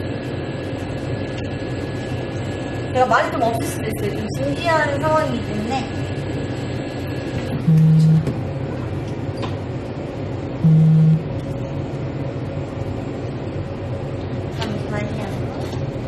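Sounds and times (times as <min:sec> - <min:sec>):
low background hum: 0:00.0 - 0:16.0
short low buzzes: 0:07.6 - 0:08.3, 0:10.6 - 0:11.4.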